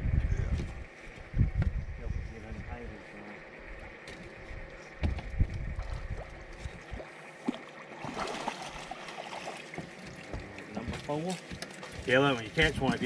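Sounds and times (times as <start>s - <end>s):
fish splashing: 5.7s - 12.1s.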